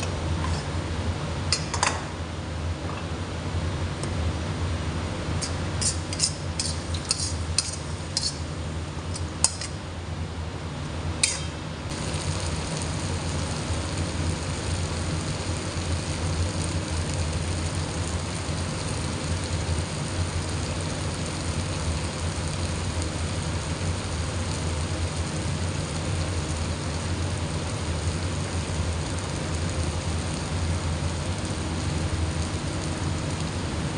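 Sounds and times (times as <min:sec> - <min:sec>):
low hum and hiss: 0:00.0 - 0:33.9
spatula scraping pan: 0:05.8 - 0:08.4.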